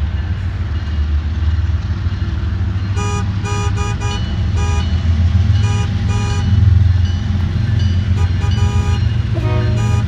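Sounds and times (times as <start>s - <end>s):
locomotive horn toots: 3.0s - 5.0s, 5.6s - 6.7s, 8.1s - 10.0s.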